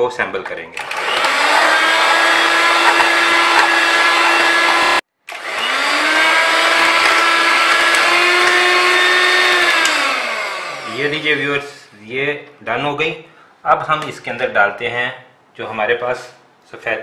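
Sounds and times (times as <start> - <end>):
electric hand mixer whirring: 0.8 - 11.9.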